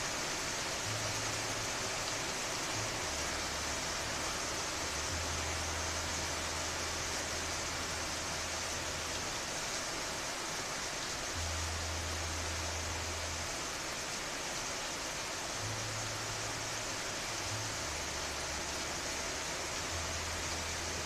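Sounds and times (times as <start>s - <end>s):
steady rain falling: 0.0s - 21.0s.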